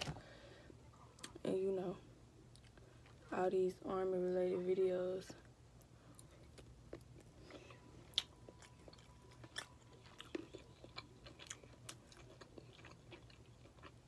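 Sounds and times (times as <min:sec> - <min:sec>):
person chewing: 0:05.8 - 0:14.0.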